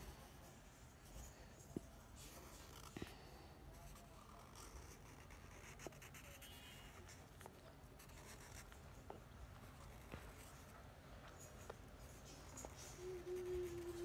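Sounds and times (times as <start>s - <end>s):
marker scratching on paper: 3.8s - 7.2s, 8.0s - 8.8s, 11.3s - 14.0s.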